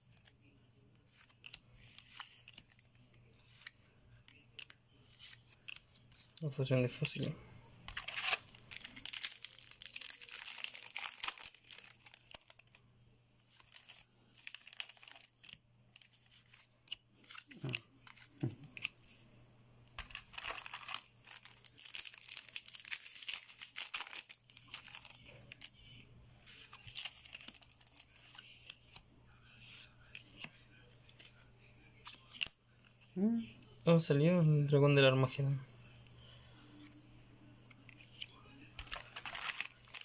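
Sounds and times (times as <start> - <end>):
foil wrapper crinkling and tearing: 7.9 - 12.8, 13.5 - 16.6, 20.0 - 25.7, 26.5 - 28.8, 38.8 - 40.0.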